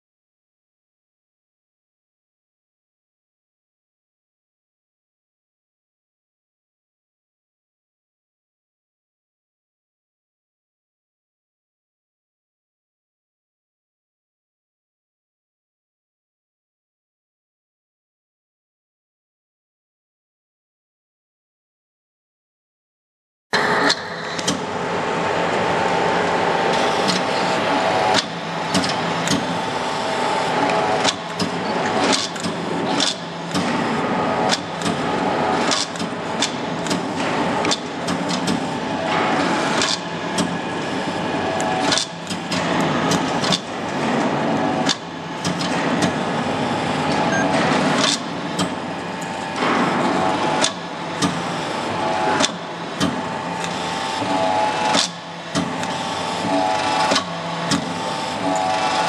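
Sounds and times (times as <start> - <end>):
hydraulic pump whining: 23.6 - 59.0.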